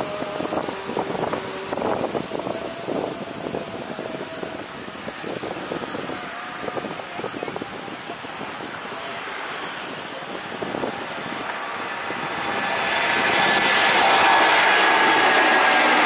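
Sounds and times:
high jet engine whine: 0.0s - 16.0s
jet airliner engine rush: 0.0s - 16.0s.

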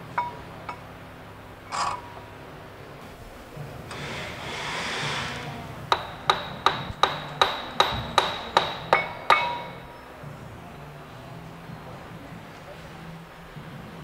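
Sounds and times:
hammer striking metal: 0.1s - 0.8s, 5.9s - 10.0s.

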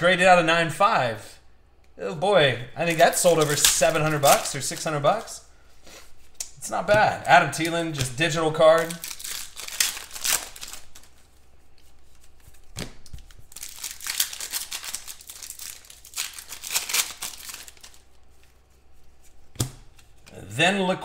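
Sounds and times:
foil wrappers crinkling and tearing: 2.8s - 5.4s, 7.5s - 18.7s.

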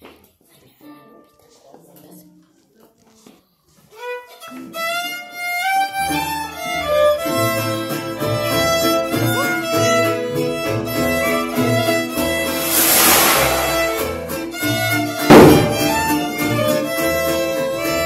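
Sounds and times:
short rush of noise: 12.4s - 14.5s.

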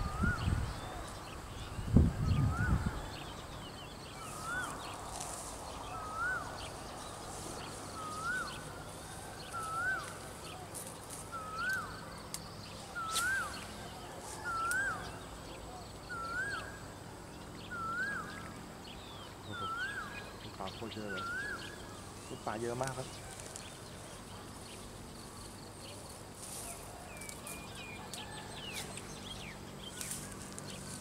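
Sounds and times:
faint chirping: 0.0s - 16.9s
bird calling: 0.0s - 31.0s.

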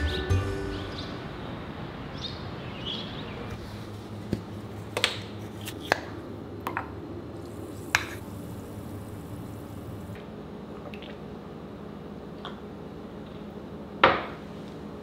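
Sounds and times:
low room hum: 3.3s - 15.0s.

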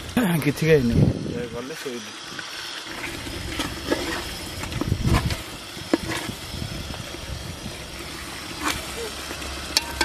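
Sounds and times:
ladle scraping metal pot: 2.9s - 6.5s, 7.7s - 9.0s.

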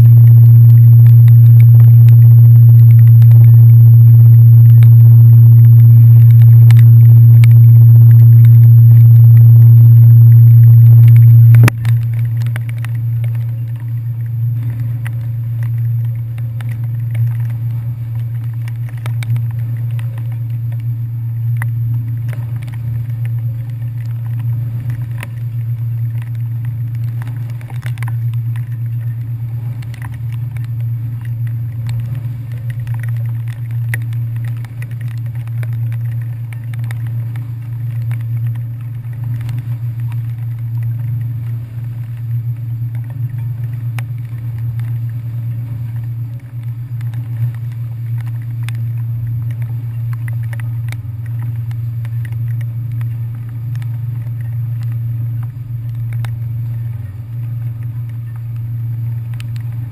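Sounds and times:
ferry engines droning: 0.0s - 59.9s.

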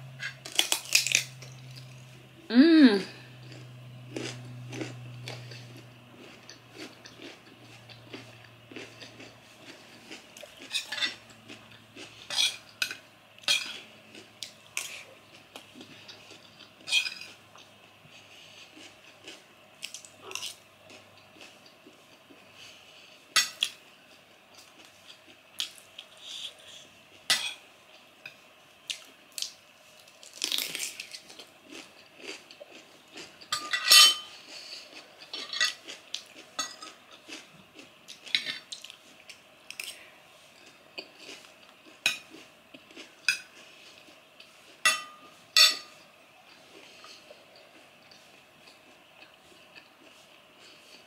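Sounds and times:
cutlery clinking on a plate: 12.3s - 13.8s, 33.5s - 34.4s, 36.6s - 37.0s, 44.8s - 46.0s.

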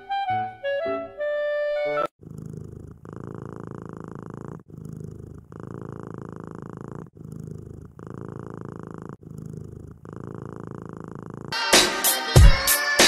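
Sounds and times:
cat purring: 2.1s - 11.6s.

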